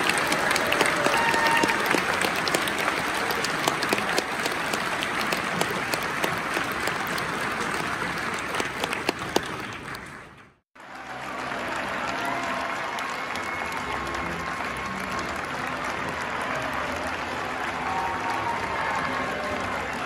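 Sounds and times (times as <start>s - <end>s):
crowd applauding: 0.0s - 20.0s
music: 10.8s - 20.0s.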